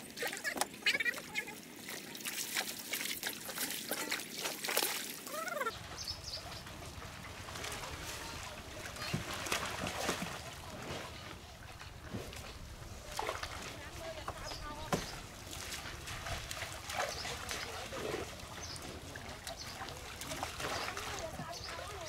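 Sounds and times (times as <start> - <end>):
water splashing and trickling: 0.0 - 22.0
people's voices: 5.3 - 22.0.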